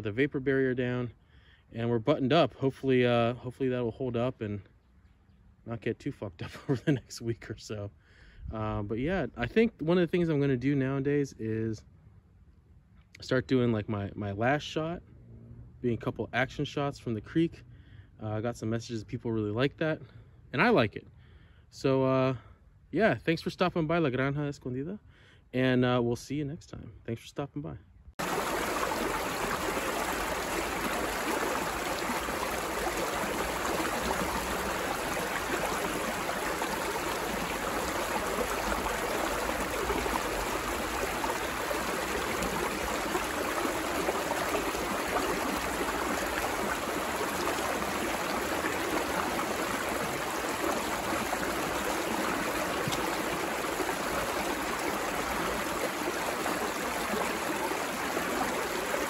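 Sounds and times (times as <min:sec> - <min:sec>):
creek babbling over stones: 0:28.2 - 0:59.0.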